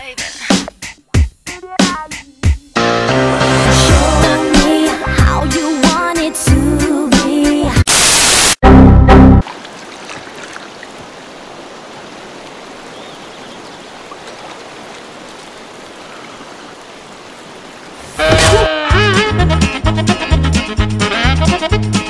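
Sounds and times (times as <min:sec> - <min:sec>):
loud music: 0:01.5 - 0:09.4, 0:18.3 - 0:22.0
river flowing over rocks: 0:09.4 - 0:18.1.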